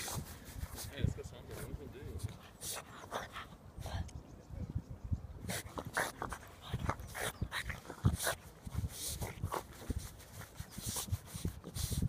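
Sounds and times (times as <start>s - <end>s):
dog paws digging in dirt: 0.0s - 3.4s, 5.5s - 12.0s.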